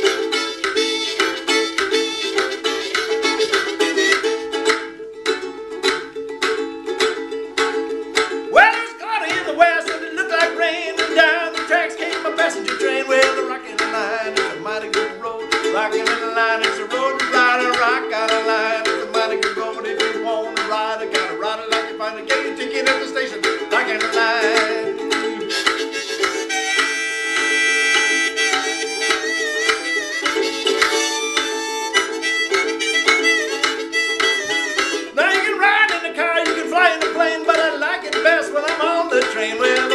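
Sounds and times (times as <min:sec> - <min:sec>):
harmonica wailing: 0:00.0 - 0:04.8, 0:08.5 - 0:39.9
harmonica playing chords: 0:00.0 - 0:05.0, 0:25.4 - 0:35.8
ukulele strumming: 0:00.0 - 0:39.9.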